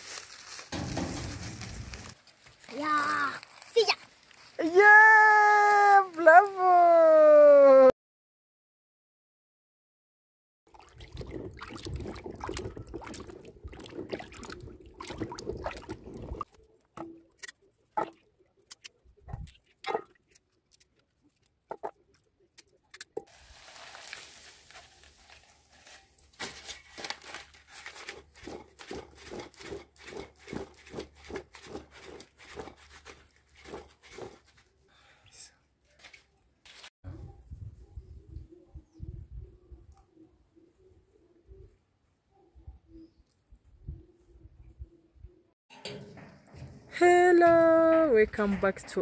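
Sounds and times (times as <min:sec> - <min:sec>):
water splashing: 0:10.7 - 0:16.6.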